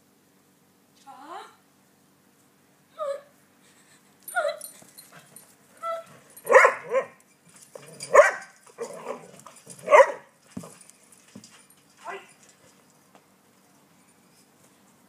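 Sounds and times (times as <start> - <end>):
dog barking and yipping: 4.4 - 10.8.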